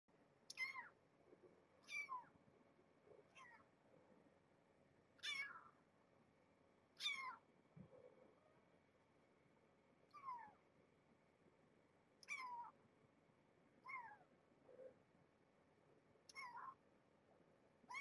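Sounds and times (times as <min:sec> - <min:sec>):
kitten mewing: 0:00.5 - 0:00.9, 0:01.8 - 0:02.3, 0:03.3 - 0:03.6, 0:05.2 - 0:05.8, 0:07.0 - 0:07.4, 0:10.1 - 0:10.6, 0:12.2 - 0:12.7, 0:13.8 - 0:14.3, 0:16.3 - 0:16.8.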